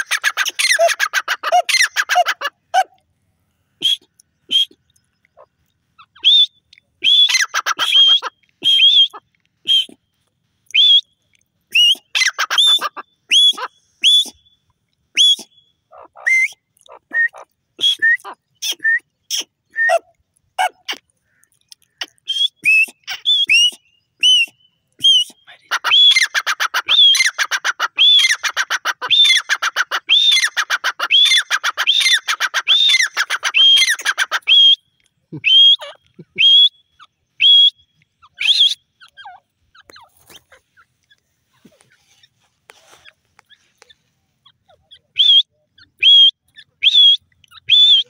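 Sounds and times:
francolin calling: 3.8s - 10.0s, 20.9s - 48.0s.

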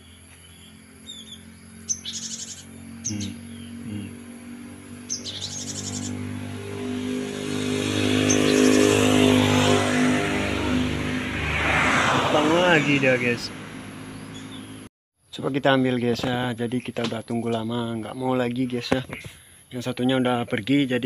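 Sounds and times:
birds chattering calls: 0.0s - 9.6s, 12.8s - 14.9s
passing vehicle engine: 0.0s - 14.9s.

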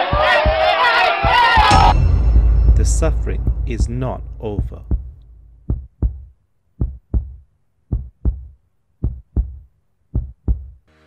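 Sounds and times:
heartbeat double thumps: 1.7s - 6.2s.

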